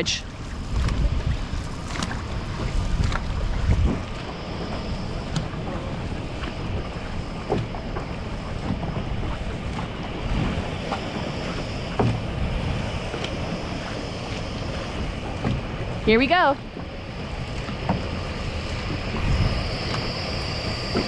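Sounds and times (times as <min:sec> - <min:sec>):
water moving around boat: 0:00.0 - 0:21.0
wind rushing over microphone: 0:00.0 - 0:21.0.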